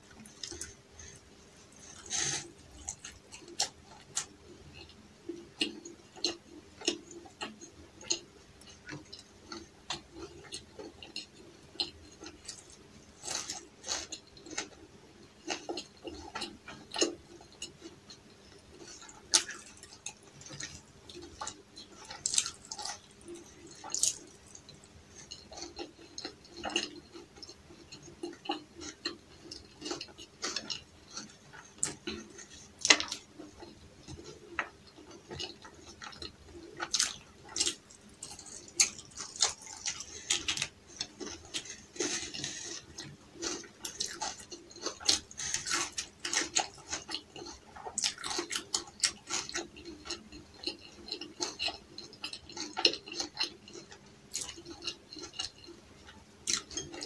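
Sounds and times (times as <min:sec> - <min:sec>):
person chewing with lip smacks: 0:18.8 - 0:57.0.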